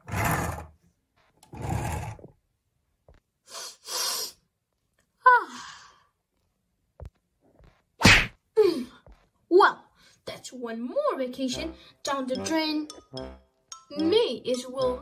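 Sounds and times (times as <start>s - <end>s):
short hissing breaths: 3.5s - 4.4s.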